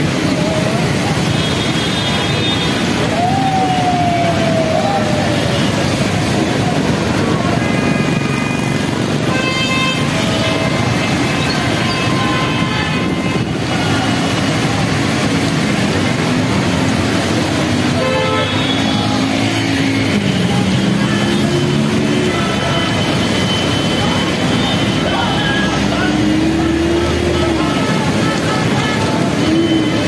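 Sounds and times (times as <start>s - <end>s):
tyres splashing through water: 0.0s - 30.0s
vehicle horns honking: 9.2s - 13.6s, 18.0s - 19.0s.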